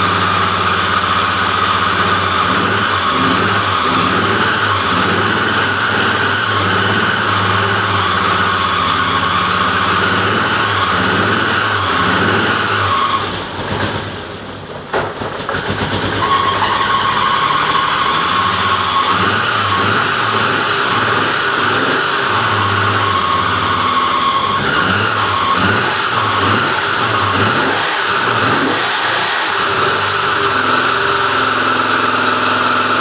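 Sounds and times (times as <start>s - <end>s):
car engine running unevenly: 0.0s - 33.0s
high squeal of slipping belt: 16.1s - 20.2s.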